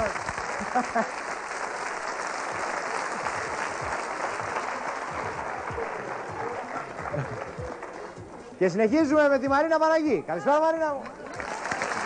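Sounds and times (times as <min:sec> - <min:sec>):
audience applauding: 0:00.0 - 0:08.3, 0:11.0 - 0:12.0.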